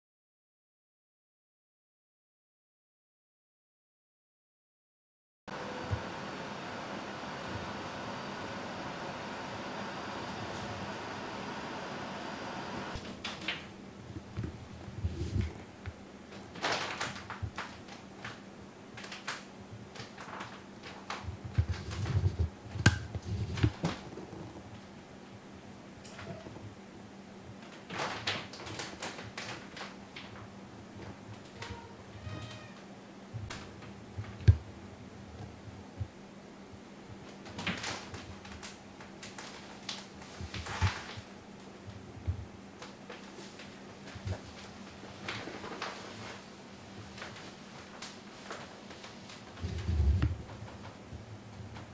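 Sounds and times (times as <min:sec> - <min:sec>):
plastic rustling: 0:13.0 - 0:24.9, 0:27.6 - 0:30.6, 0:37.3 - 0:41.3, 0:42.8 - 0:51.0
plastic cover crinkling: 0:16.3 - 0:24.8, 0:27.6 - 0:30.5, 0:37.4 - 0:41.3, 0:42.8 - 0:51.0.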